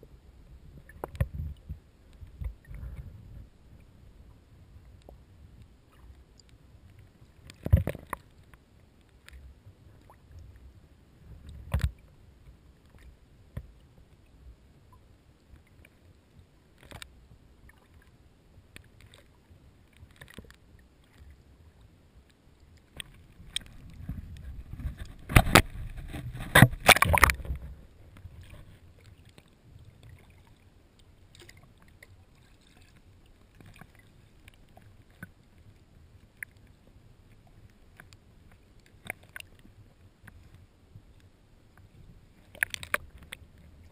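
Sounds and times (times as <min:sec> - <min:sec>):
muffled water noise: 0:00.0 - 0:43.9
paddle splashing: 0:22.8 - 0:35.7.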